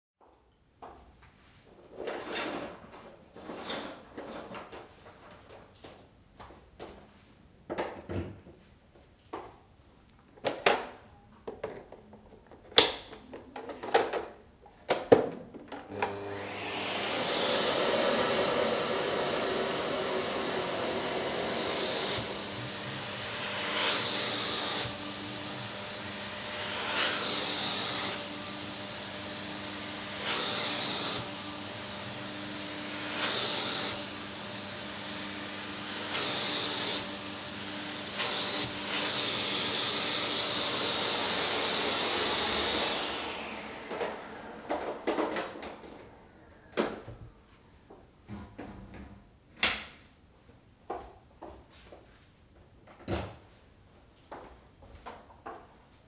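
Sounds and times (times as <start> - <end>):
vacuum cleaner motor running: 15.9 - 46.5.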